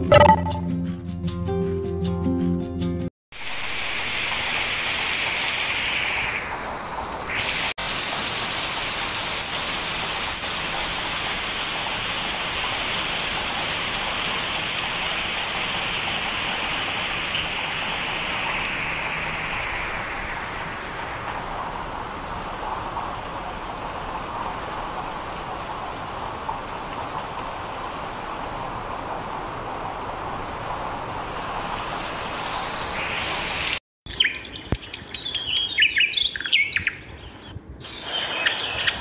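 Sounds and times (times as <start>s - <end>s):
heavy rain on foliage: 3.3s - 33.8s.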